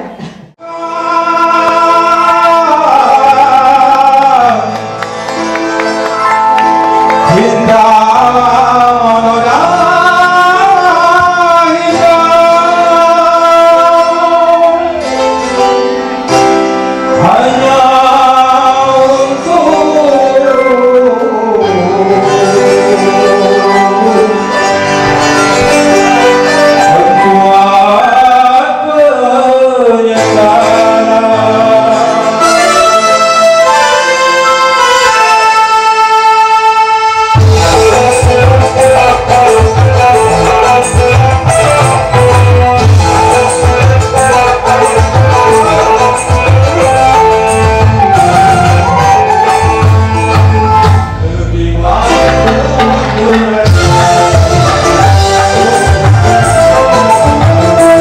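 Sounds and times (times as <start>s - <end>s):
band music through pa: 0.0s - 58.0s
wavering vocal melody: 43.0s - 58.0s.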